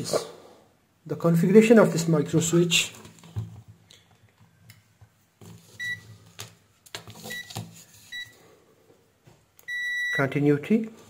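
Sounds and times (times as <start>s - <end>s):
multimeter beeps: 5.8s - 6.0s, 7.3s - 7.5s, 8.1s - 8.3s, 9.6s - 10.3s.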